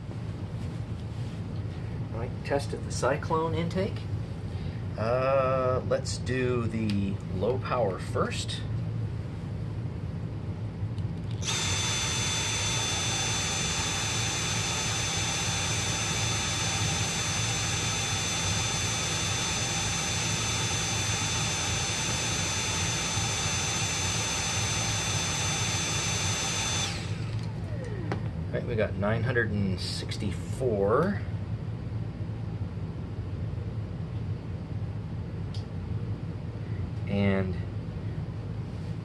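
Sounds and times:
cordless vacuum running: 11.4 - 28.4.

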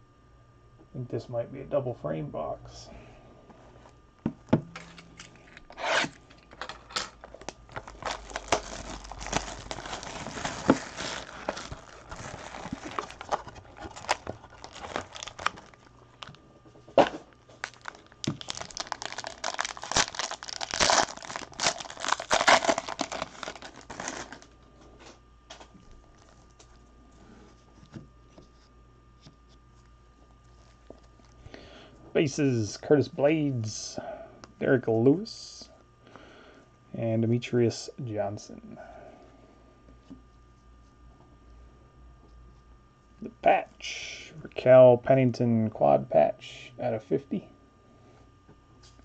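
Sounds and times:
foil wrapper crinkling and tearing: 4.8 - 16.4, 17.0 - 24.6, 26.0 - 26.8.

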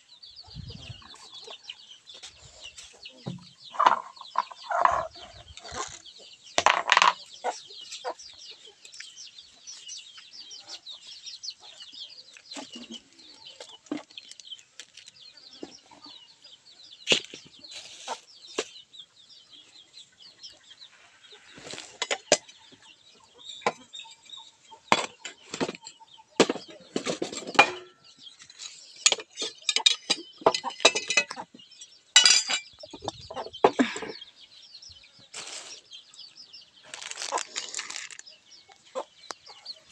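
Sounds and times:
chickens clucking: 0.0 - 39.9
sharp knocks and clatters: 6.6 - 7.3, 24.9 - 28.0, 29.0 - 31.4.

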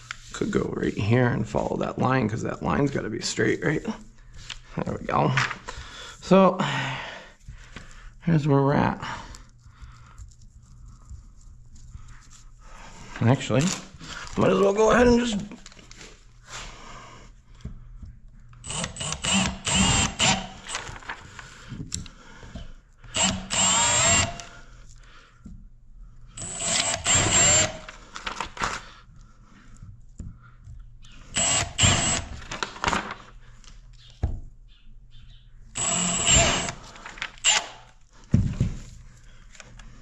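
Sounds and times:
cordless drill whining: 18.6 - 21.0, 23.1 - 24.6, 26.4 - 27.9, 31.2 - 32.5, 35.8 - 38.0.

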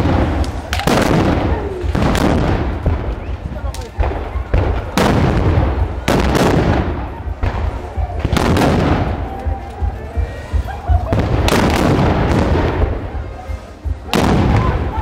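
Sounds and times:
loud gunshots: 0.0 - 3.2, 3.9 - 9.3, 11.0 - 13.0, 14.1 - 15.0.

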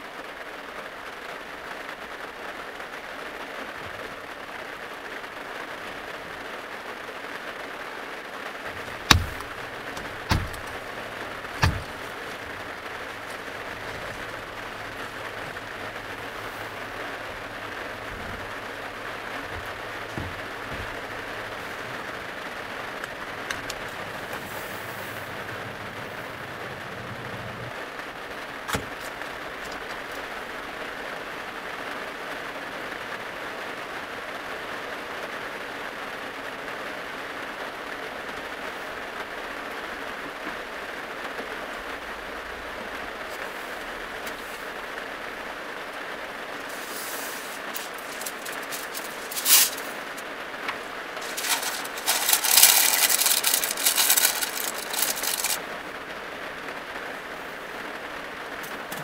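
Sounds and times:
steady hiss: 1.2 - 32.0, 41.5 - 56.4
baking paper crinkling: 8.7 - 24.9, 46.6 - 55.6.

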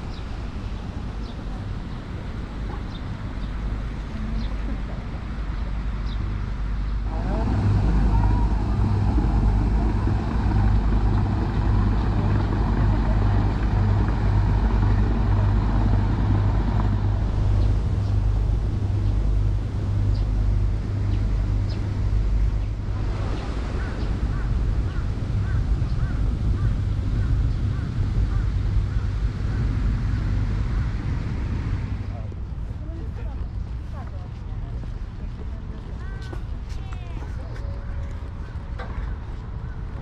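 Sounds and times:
road traffic rumble: 0.0 - 40.0
birds calling: 6.0 - 32.2.

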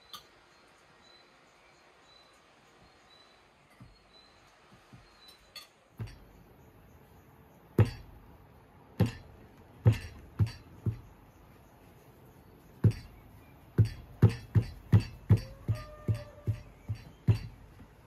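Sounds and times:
sharp knocks with dull thud: 6.0 - 6.4, 7.8 - 8.3, 9.0 - 11.2, 12.8 - 18.0.

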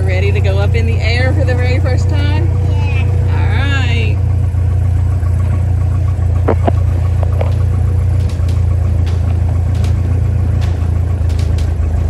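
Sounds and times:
propeller plane engine drone: 0.0 - 12.0.

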